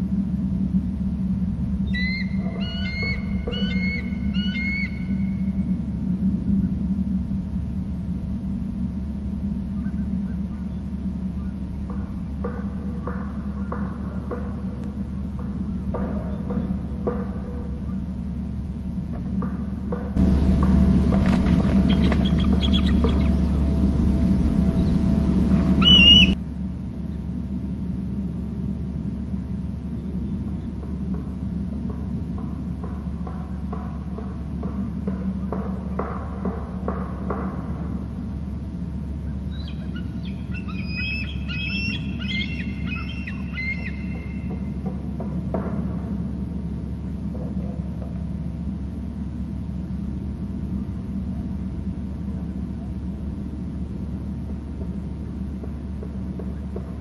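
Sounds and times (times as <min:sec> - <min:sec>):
low hum: 0:00.0 - 0:57.0
steady low rumble: 0:00.0 - 0:57.0
eagle high piping call: 0:01.8 - 0:05.6, 0:21.8 - 0:23.6, 0:25.8 - 0:26.4, 0:39.5 - 0:44.6.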